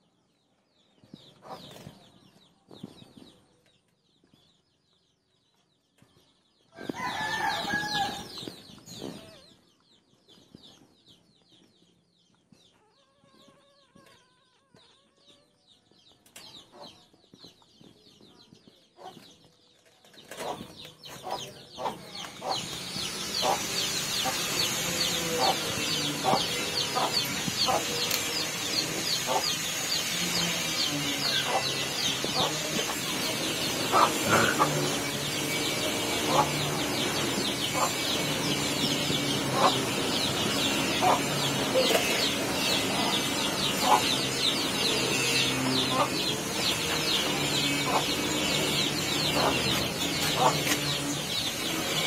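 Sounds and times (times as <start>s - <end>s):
outdoor background noise: 0.0s - 52.0s
chickens clucking: 1.2s - 3.3s, 16.2s - 52.0s.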